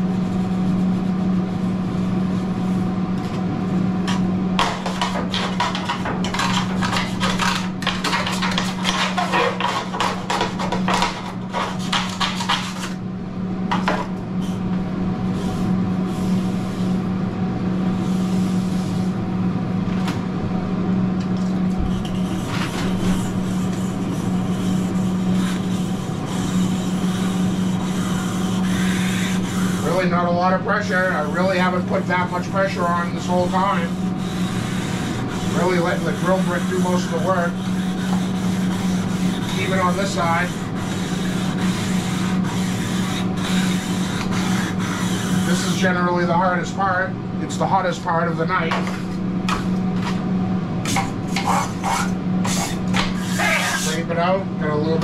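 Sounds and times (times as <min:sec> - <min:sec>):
exhaust fan hum: 0:00.0 - 0:55.0
grill brick scrubbing griddle: 0:03.8 - 0:13.0, 0:13.6 - 0:17.1, 0:17.8 - 0:19.2, 0:21.8 - 0:46.8, 0:50.8 - 0:54.2.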